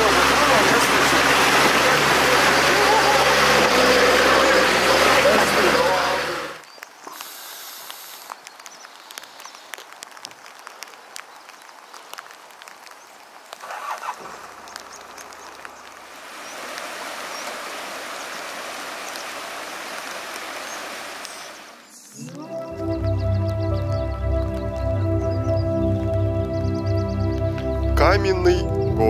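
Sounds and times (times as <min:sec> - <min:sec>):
flowing water rushing: 0:00.0 - 0:22.9.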